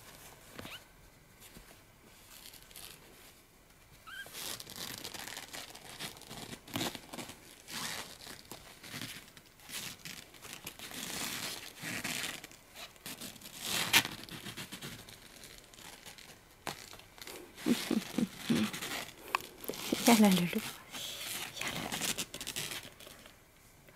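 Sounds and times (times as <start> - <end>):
fabric rustling and crinkling: 0.0 - 23.8
kitten mewing: 17.6 - 18.8.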